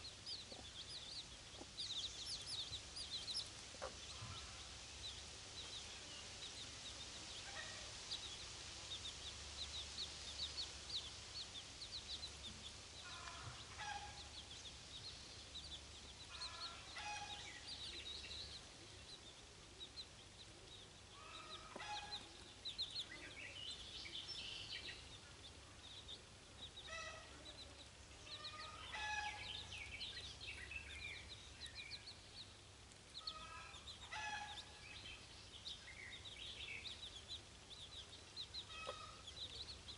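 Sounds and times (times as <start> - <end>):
chicks peeping: 0.0 - 39.9
hen clucking: 0.3 - 4.7, 21.2 - 23.0, 38.6 - 39.7.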